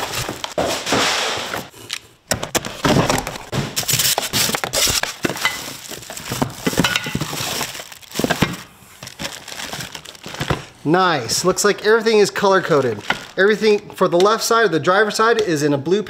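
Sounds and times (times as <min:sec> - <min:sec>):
cardboard and plastic wrap rustling: 0:00.0 - 0:10.8, 0:11.5 - 0:13.8.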